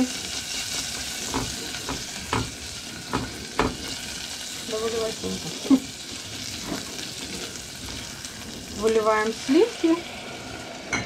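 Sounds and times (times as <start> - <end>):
garlic sizzling in oil: 0.0 - 11.0
spatula knocking against pan: 1.3 - 3.8.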